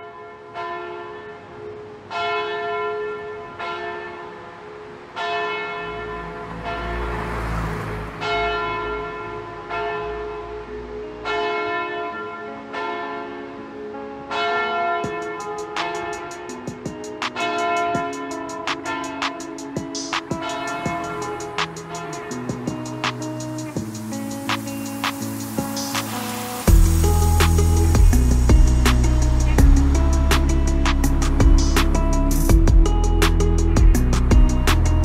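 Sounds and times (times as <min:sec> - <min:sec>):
church bells ringing: 0:00.0 - 0:28.7
low rumble: 0:26.7 - 0:33.0.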